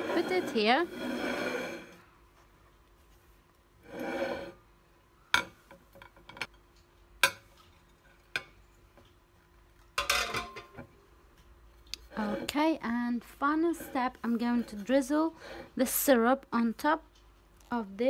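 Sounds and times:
glass plate scraping on worktop: 0.0s - 2.0s, 3.8s - 4.6s.

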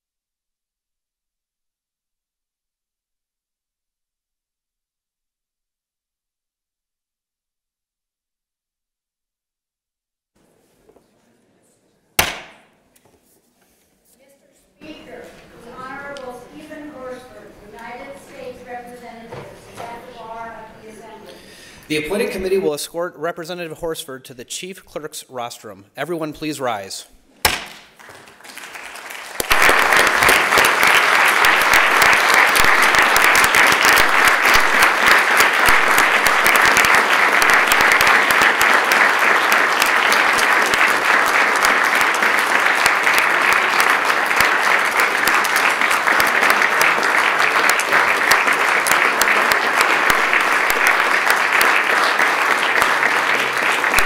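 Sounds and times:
crowd applauding: 27.8s - 54.0s.

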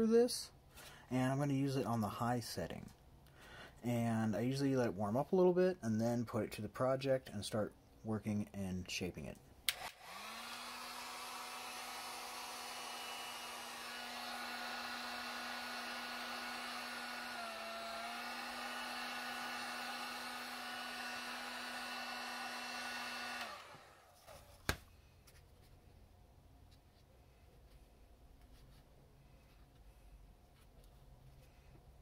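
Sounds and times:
heat gun blower whir: 9.7s - 24.4s.

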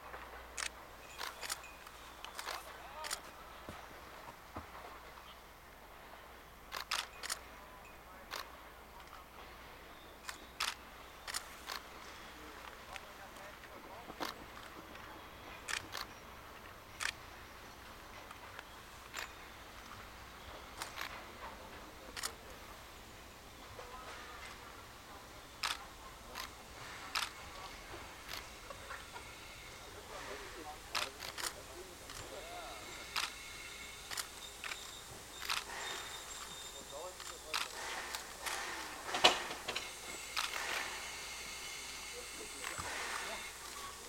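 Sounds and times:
faint hiss: 0.0s - 44.0s
faint steady background noise: 0.0s - 44.0s
camera shutter clicks: 0.6s - 3.3s, 6.7s - 7.5s, 22.2s - 22.4s, 25.6s - 27.6s, 30.9s - 32.2s, 34.1s - 36.5s, 37.2s - 40.9s.

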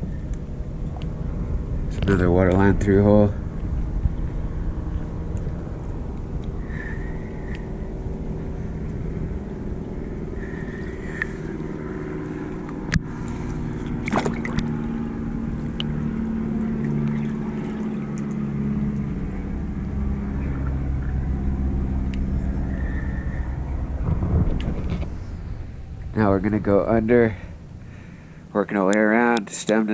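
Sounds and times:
water splashing and gurgling: 3.4s - 23.0s
motor humming: 3.4s - 28.5s.

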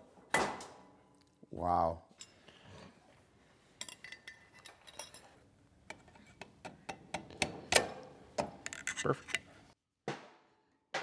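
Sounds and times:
metal tools clinking: 3.8s - 5.4s.

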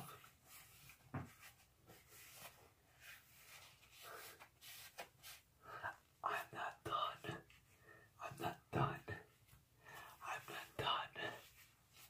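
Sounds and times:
wipe rubbing on face: 0.2s - 5.5s.

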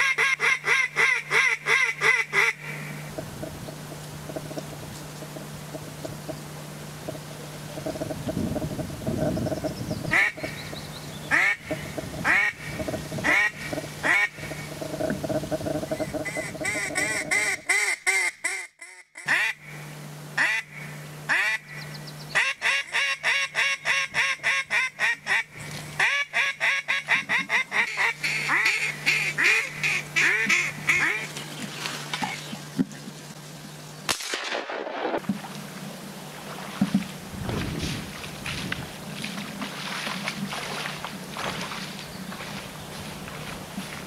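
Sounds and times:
duck quacking: 0.0s - 3.1s, 10.1s - 10.6s, 11.3s - 14.7s, 16.0s - 19.6s, 20.4s - 21.8s, 22.4s - 31.4s.

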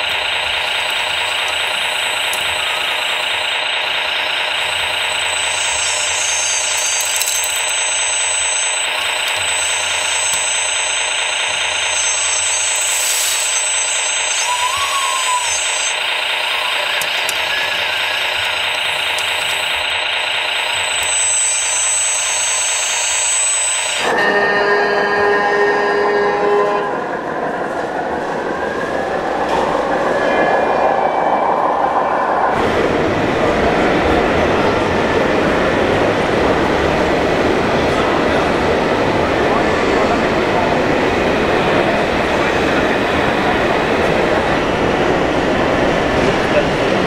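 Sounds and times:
electric drive whine: 0.0s - 24.3s
electronic diesel engine sound: 0.0s - 47.0s.

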